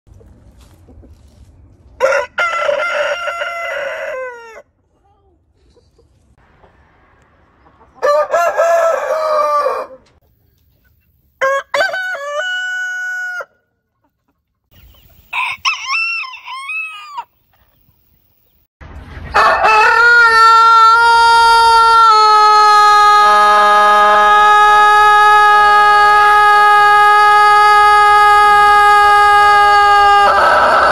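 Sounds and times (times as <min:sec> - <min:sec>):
roosters crowing: 0:02.0 - 0:04.8, 0:07.8 - 0:10.2, 0:11.4 - 0:13.6, 0:15.2 - 0:17.4, 0:19.3 - 0:30.9.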